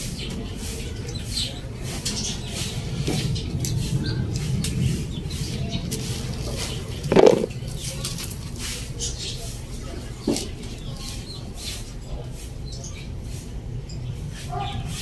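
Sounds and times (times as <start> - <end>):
leaves rustling: 5.8 - 8.3.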